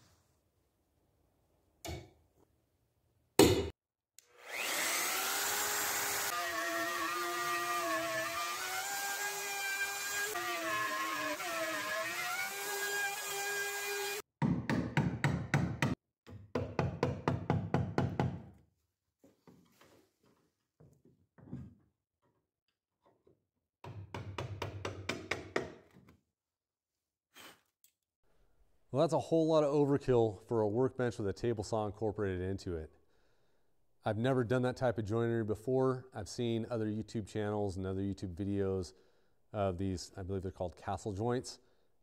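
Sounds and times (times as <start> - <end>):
electric router whining: 4.3 - 14.2.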